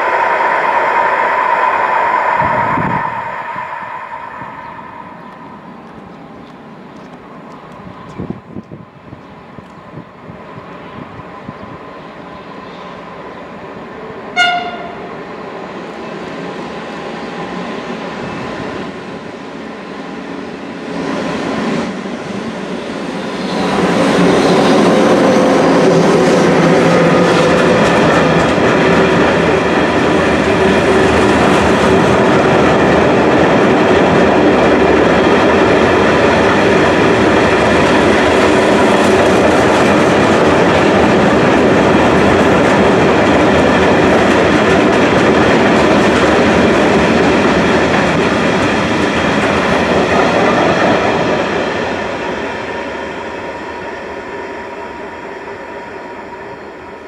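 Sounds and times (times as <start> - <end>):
locomotive approaching: 0.0 - 57.0.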